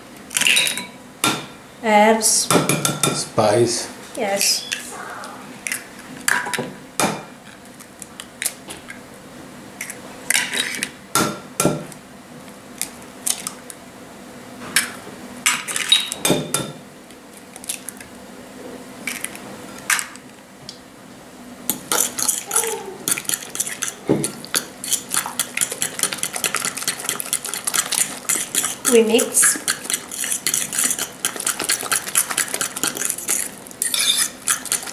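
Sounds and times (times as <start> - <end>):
clicks of mixing in a bowl: 21.7 - 34.9.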